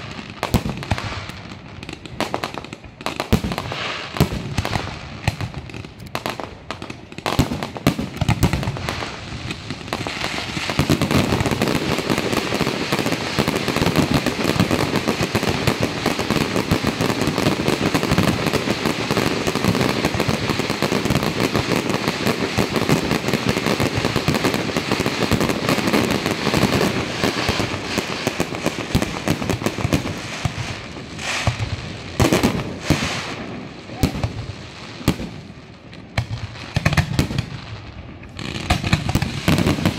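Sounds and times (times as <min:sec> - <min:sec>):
fireworks bangs and crackling: 0:00.0 - 0:39.9.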